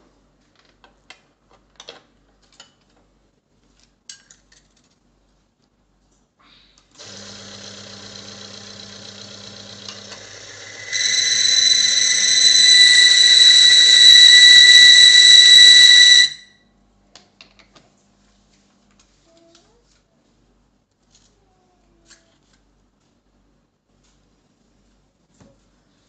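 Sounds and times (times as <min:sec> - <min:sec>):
electric motor humming: 0:07.0 - 0:16.3
metal rubbing squeal: 0:10.6 - 0:16.5.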